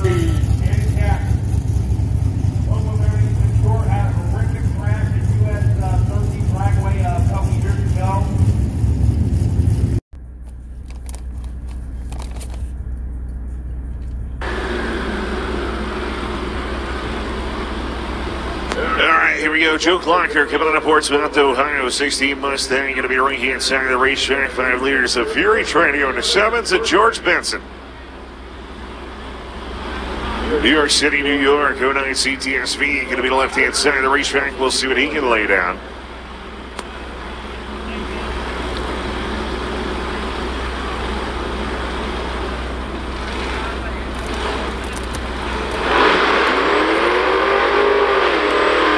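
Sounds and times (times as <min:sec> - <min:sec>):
engines idling: 0:00.0 - 0:48.9
rushing noise: 0:45.3 - 0:48.9.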